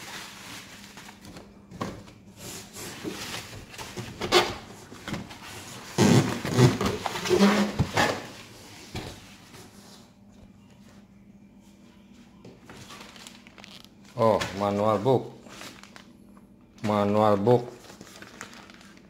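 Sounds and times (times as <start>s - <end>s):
bubble wrap rustling and crinkling: 0.0s - 1.7s, 12.6s - 16.2s, 16.9s - 19.0s.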